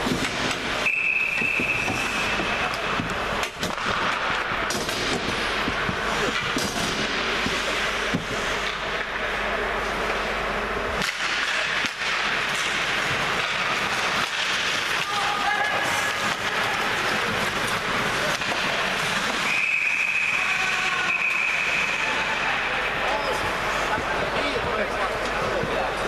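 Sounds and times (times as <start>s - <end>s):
sticks and puck clacking: 0.0s - 19.6s
skates scraping over ice: 11.0s - 26.0s.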